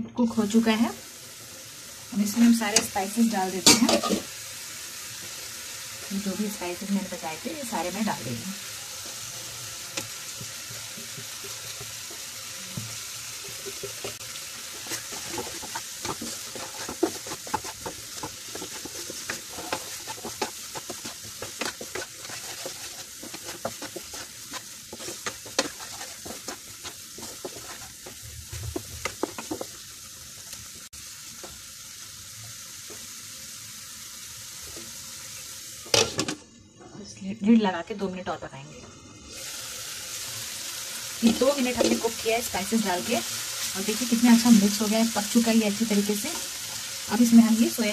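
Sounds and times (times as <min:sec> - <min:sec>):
masala sizzling in a pan: 0:00.2 - 0:47.9
wooden spatula scraping a pan: 0:02.4 - 0:04.3, 0:10.9 - 0:30.0, 0:41.2 - 0:47.9.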